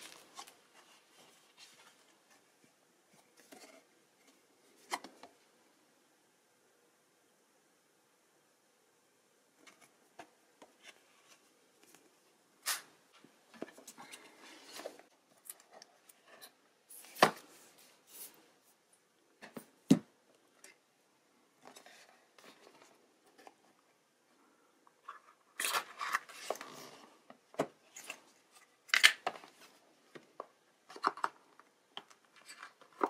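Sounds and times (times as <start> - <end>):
paper packaging rustling: 0.0 - 2.3.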